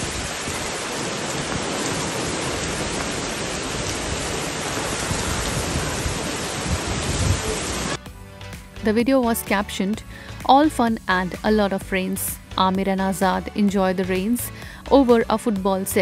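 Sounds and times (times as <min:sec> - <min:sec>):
heavy rain on pavement: 0:00.0 - 0:08.0.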